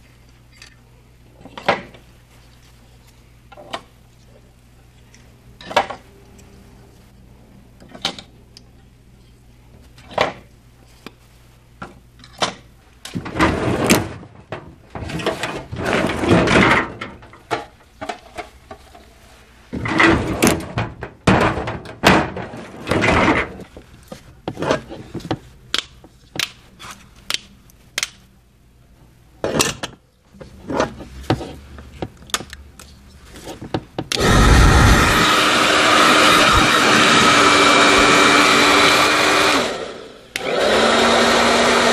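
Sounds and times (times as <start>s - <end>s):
hair dryer blowing: 34.2s - 41.9s.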